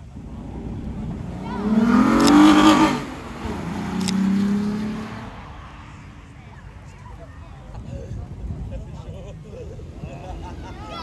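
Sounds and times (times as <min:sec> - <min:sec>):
sports car accelerating hard: 0:00.0 - 0:06.4.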